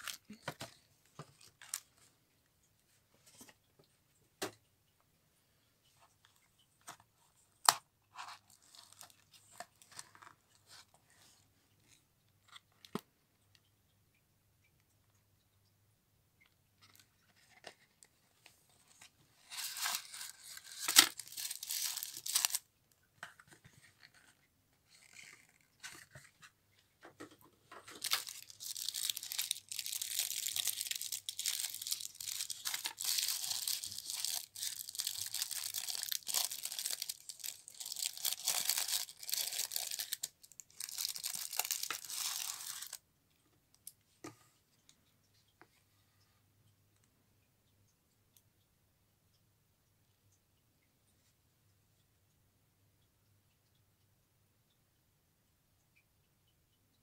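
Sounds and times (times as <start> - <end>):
tissue paper crinkling: 8.2 - 10.1, 19.4 - 22.6, 27.8 - 43.0.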